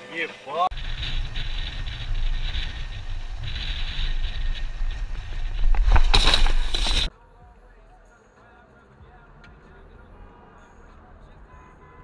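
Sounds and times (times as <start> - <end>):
wind rushing over microphone: 0.7 - 7.1
vehicle rumbling on dirt road: 0.7 - 12.0.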